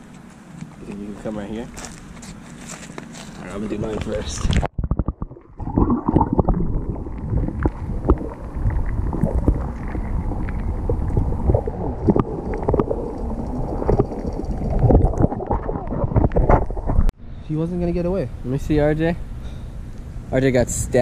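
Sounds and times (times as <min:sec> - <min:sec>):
underwater sloshing and rumbling: 0:03.9 - 0:17.2
small clicks and knocks underwater: 0:12.0 - 0:17.1.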